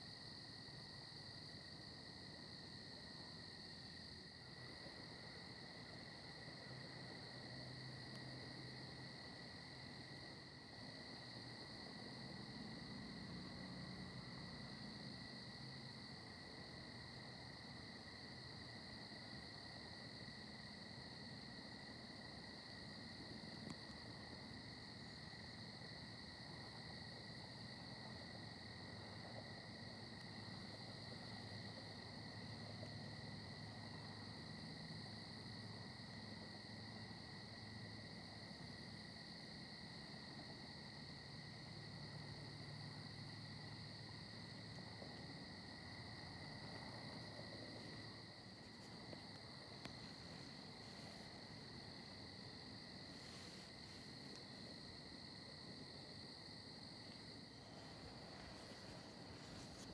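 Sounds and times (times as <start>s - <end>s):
insects trilling: 0.0s - 59.9s.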